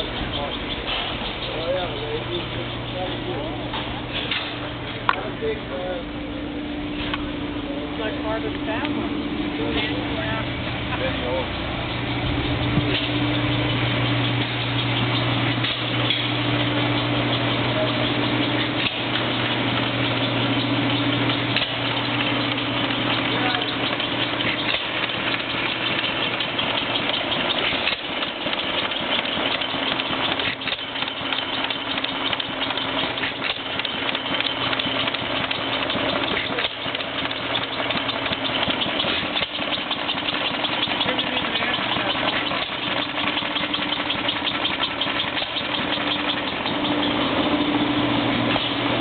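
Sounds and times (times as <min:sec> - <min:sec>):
stationary gas engines clattering: 0:00.0 - 0:49.0
faint engine knock: 0:20.1 - 0:47.2.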